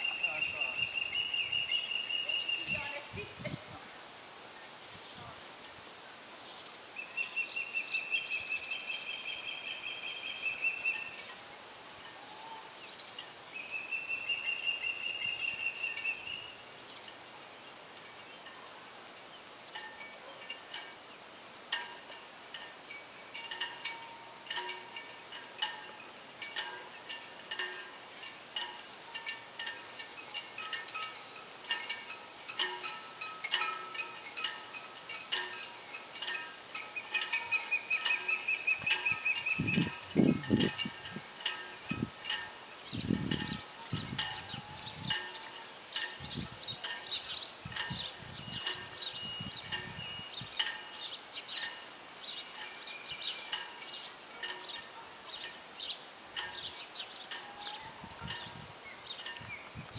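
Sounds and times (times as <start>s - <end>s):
osprey whistled calls: 0.0s - 3.0s, 7.0s - 11.3s, 13.5s - 16.6s, 36.8s - 40.0s
light metallic clinks and chimes: 7.2s - 59.9s.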